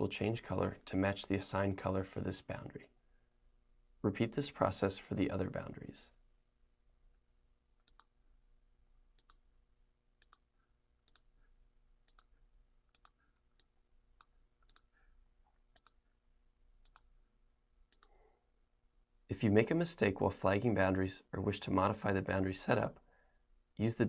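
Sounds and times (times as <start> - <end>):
faint computer mouse clicks: 7.8 - 8.1, 9.2 - 9.4, 10.2 - 11.3, 12.0 - 12.3, 12.9 - 14.9, 15.7 - 16.0, 17.9 - 18.2.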